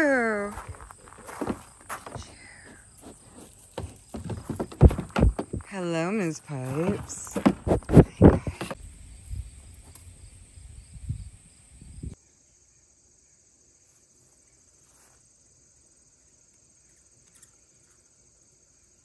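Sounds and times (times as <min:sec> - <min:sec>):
soft thumps: 0:00.6 - 0:05.8
insect chorus trilling: 0:08.2 - 0:19.0.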